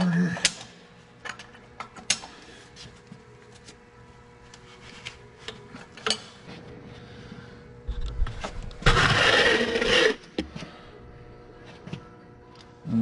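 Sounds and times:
wrench scraping: 0:08.8 - 0:10.3.

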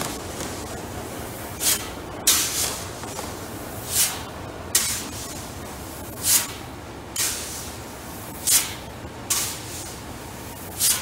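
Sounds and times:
shovel scraping grain: 0:01.6 - 0:02.8, 0:03.8 - 0:04.2, 0:06.2 - 0:06.6, 0:07.2 - 0:07.8, 0:08.4 - 0:10.0, 0:10.7 - 0:11.0.

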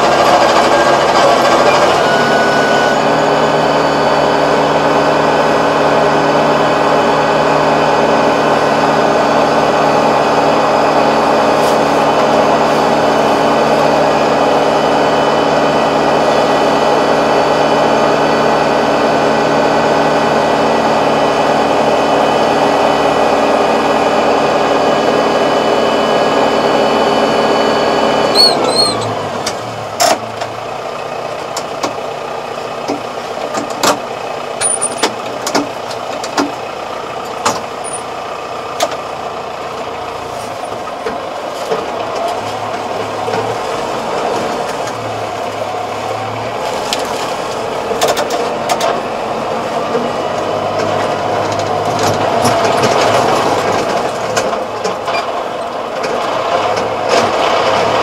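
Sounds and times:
tractor diesel engine running: 0:00.0 - 0:58.0
clanks and knocks from tiller: 0:32.8 - 0:36.6, 0:37.3 - 0:38.1, 0:47.9 - 0:49.0, 0:50.8 - 0:58.0.

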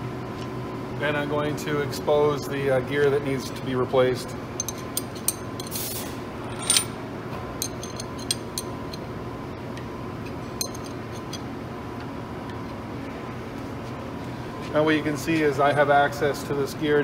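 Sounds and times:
steady hum: 0:02.1 - 0:15.5.

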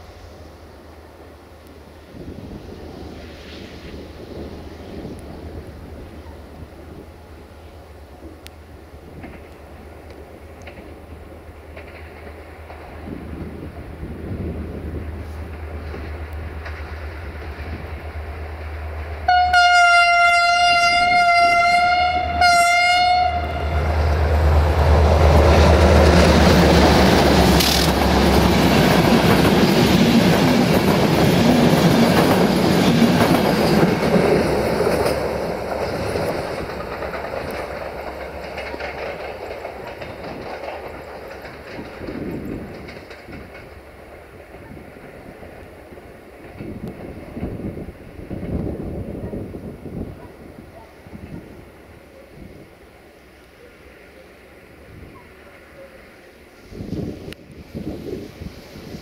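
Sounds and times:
train passing: 0:00.0 - 0:59.0
locomotive horn blasts: 0:19.3 - 0:24.0.

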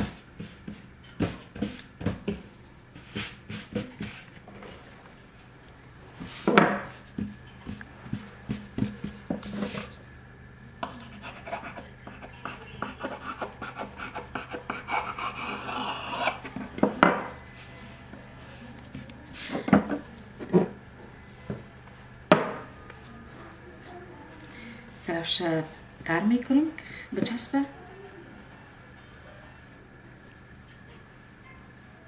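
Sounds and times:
hands rubbing dough: 0:00.0 - 0:05.0, 0:06.1 - 0:10.0
knife scraping board: 0:10.8 - 0:16.6.

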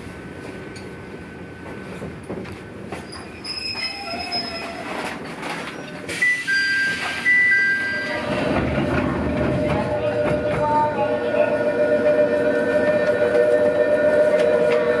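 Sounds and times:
train running noise: 0:00.0 - 0:15.0
train wheel squeal: 0:02.9 - 0:05.1.

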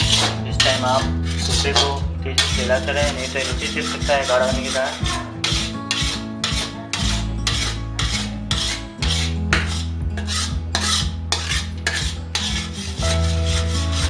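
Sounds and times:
metal spoon scraping metal pan: 0:00.0 - 0:14.0.

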